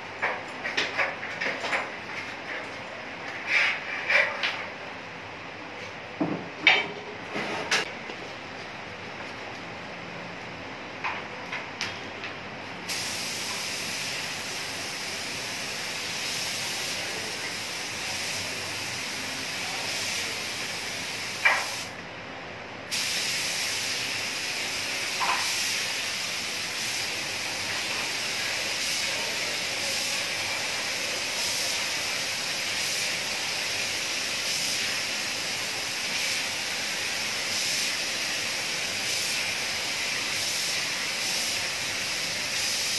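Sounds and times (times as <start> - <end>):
paint spray gun hissing: 12.9 - 21.9, 22.9 - 42.9.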